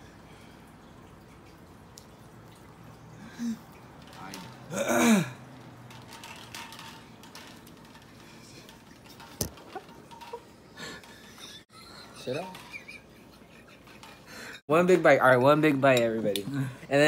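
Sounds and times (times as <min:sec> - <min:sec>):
person clearing throat: 0:04.7 - 0:05.4.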